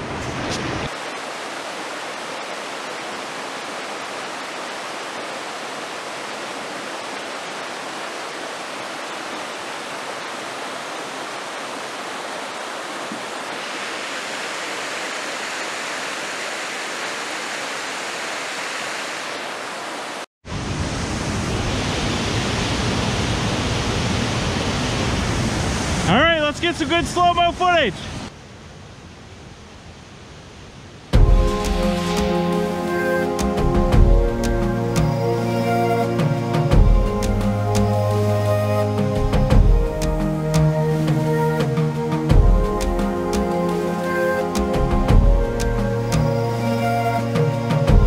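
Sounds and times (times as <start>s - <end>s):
waterfall rushing: 0.0s - 28.3s, 30.7s - 48.0s.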